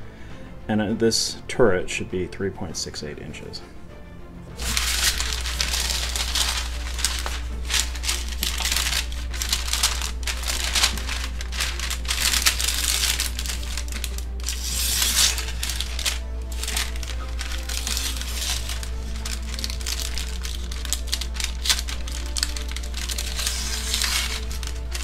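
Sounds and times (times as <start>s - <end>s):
parchment paper crinkling: 4.6s - 25.0s.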